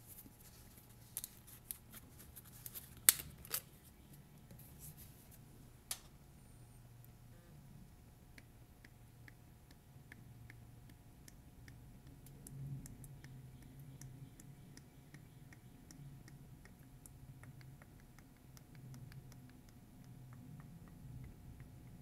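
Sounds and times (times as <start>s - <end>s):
low steady hum: 0.0s - 22.0s
soft irregular ticks: 8.3s - 22.0s.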